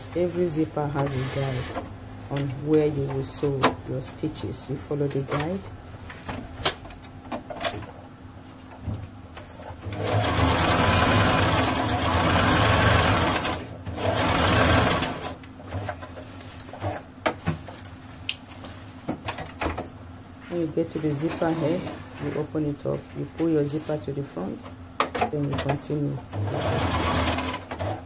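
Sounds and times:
sewing machine stitching: 0:09.8 - 0:15.9, 0:26.3 - 0:28.0.

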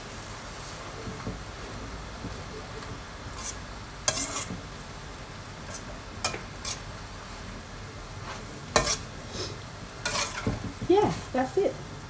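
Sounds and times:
low steady sizzle: 0:00.0 - 0:12.0
spatula scraping a wok: 0:03.3 - 0:04.6, 0:05.6 - 0:06.9, 0:08.2 - 0:11.3.

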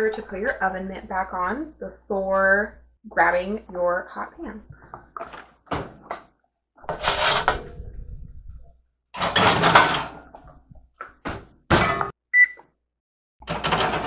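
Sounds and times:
metal tray clanking: 0:06.9 - 0:07.8, 0:09.2 - 0:10.3, 0:11.7 - 0:12.1, 0:13.4 - 0:14.0
metal tray scraping on rack: 0:06.9 - 0:07.9, 0:09.2 - 0:10.3, 0:13.5 - 0:14.0
oven door opening: 0:13.5 - 0:14.0.

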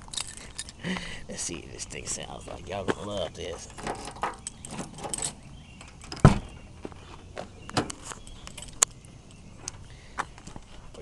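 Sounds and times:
key rattling in car door lock: 0:00.0 - 0:00.8, 0:03.6 - 0:06.5, 0:08.5 - 0:08.8
car door clunk: 0:03.8 - 0:06.6.

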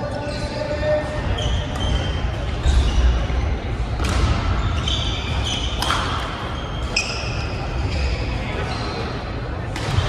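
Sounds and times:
low hum of sports hall: 0:00.0 - 0:10.0
racket hitting shuttlecock: 0:05.6 - 0:06.5.

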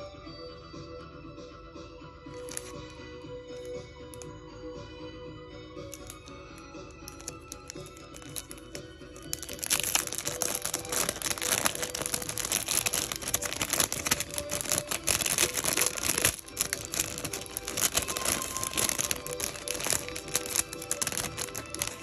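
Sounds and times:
plastic wrap crinkling: 0:02.3 - 0:02.9, 0:05.9 - 0:06.3, 0:07.0 - 0:22.0.

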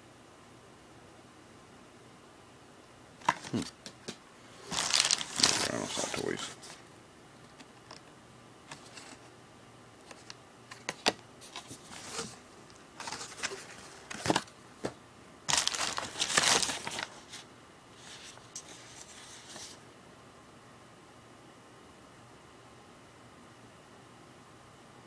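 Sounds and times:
bubble wrap and paper rustling: 0:03.2 - 0:03.7, 0:04.5 - 0:06.8, 0:10.1 - 0:12.4, 0:13.0 - 0:14.5, 0:15.5 - 0:19.8.

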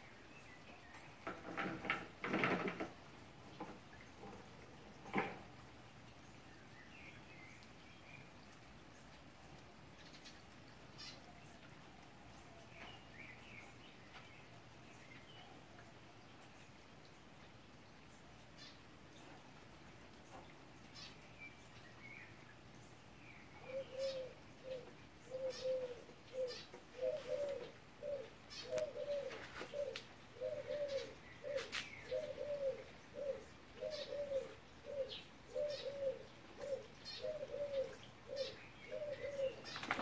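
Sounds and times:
small birds chirping: 0:00.0 - 0:40.0
dove cooing: 0:23.6 - 0:40.0.

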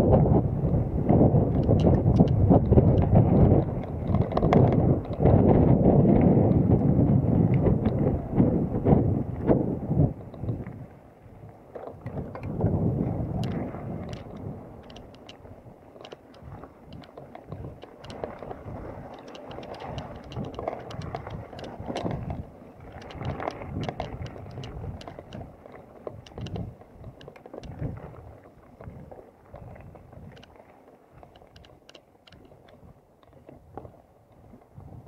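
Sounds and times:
wind buffeting microphone: 0:00.0 - 0:35.0
bike clicking and rattling: 0:01.5 - 0:07.0, 0:13.4 - 0:28.2, 0:28.8 - 0:33.8.

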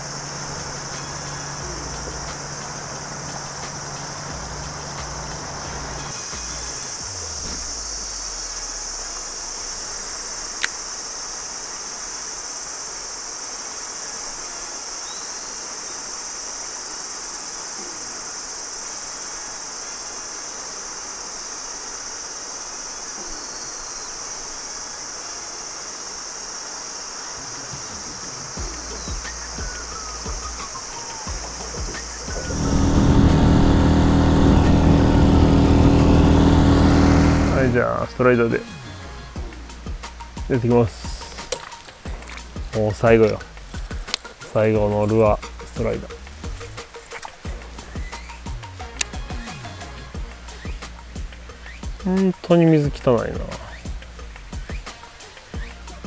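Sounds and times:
low hum: 0:00.0 - 0:10.9, 0:28.6 - 0:38.6
insects chorus: 0:00.0 - 0:56.0.

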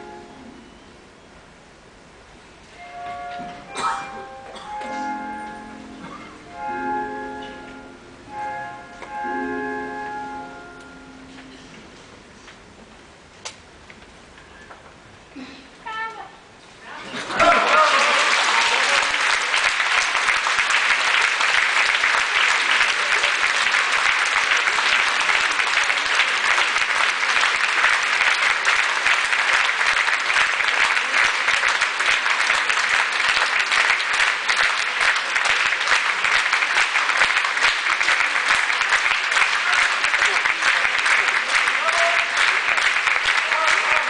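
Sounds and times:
audience applauding: 0:17.1 - 0:44.0.

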